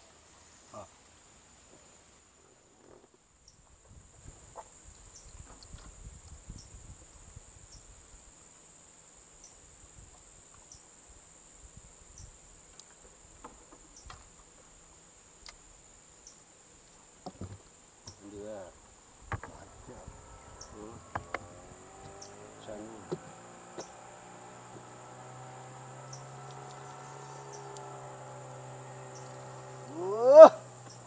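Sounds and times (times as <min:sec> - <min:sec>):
insects chirping drone: 0:00.0 - 0:31.0
faint wavering voice-like sound: 0:29.9 - 0:30.6.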